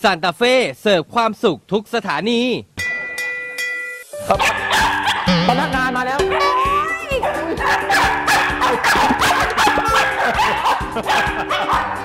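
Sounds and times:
dogs barking and yipping: 4.3 - 12.0.

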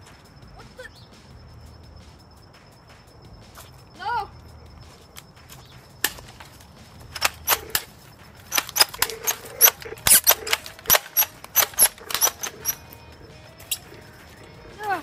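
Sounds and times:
cap gun pops: 7.2 - 7.9, 8.5 - 12.8.

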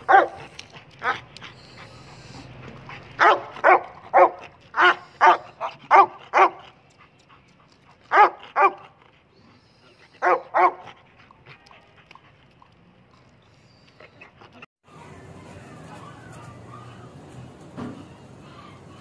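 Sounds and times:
dog barking: 0.1 - 0.4, 3.2 - 6.6, 8.1 - 8.9, 10.2 - 10.9.

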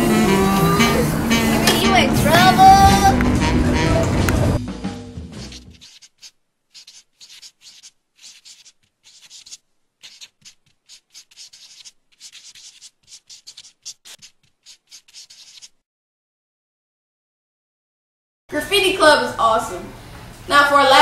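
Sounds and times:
marker scratching on paper: 5.3 - 15.8.

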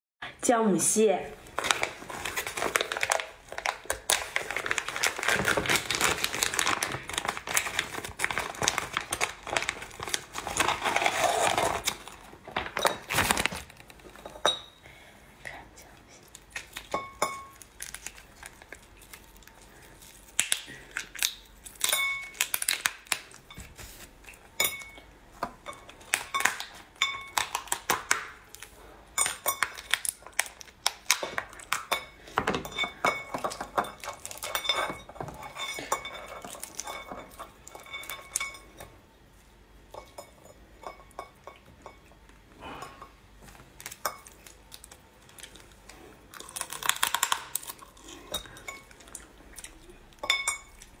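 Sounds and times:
crab shell cracking: 17.6 - 23.4, 43.8 - 48.0.

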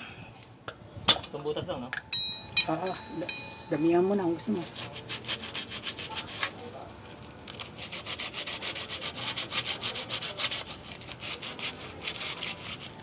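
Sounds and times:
hand scrubbing on metal: 4.6 - 6.6, 7.7 - 13.0.

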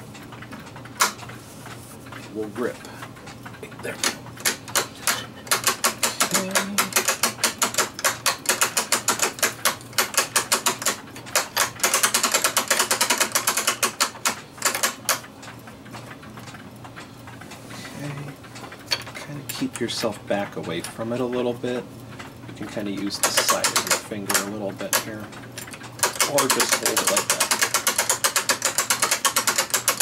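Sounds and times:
ratchet clicking rapidly: 3.9 - 15.3, 18.0 - 30.0.

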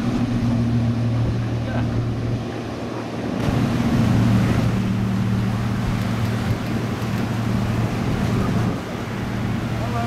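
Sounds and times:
boat engine drone: 0.0 - 10.0.

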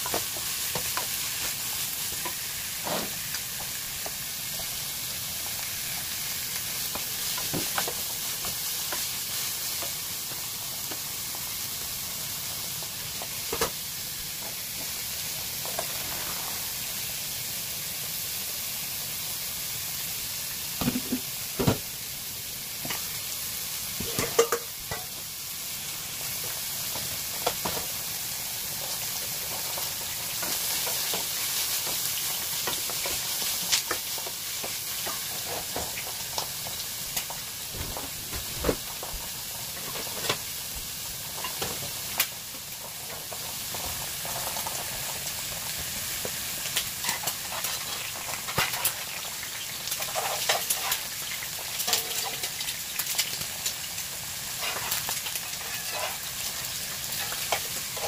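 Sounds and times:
eggs sizzling in oil: 0.0 - 58.0
cookware knocking and clanking: 24.0 - 24.7.

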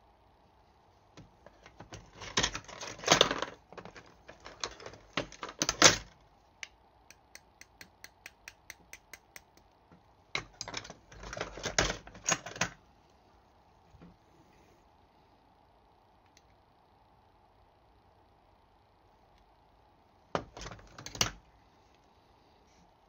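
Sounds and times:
small metal parts clicking and rattling: 10.4 - 12.8.

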